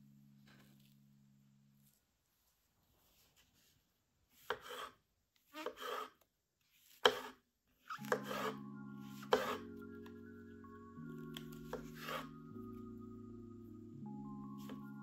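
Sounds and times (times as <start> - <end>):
soft background music: 0.0 - 2.5, 7.8 - 15.0.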